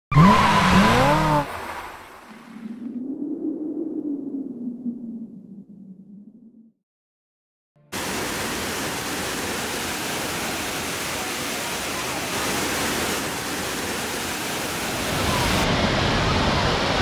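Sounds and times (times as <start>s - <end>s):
waterfall roaring onto rock: 8.0s - 17.0s.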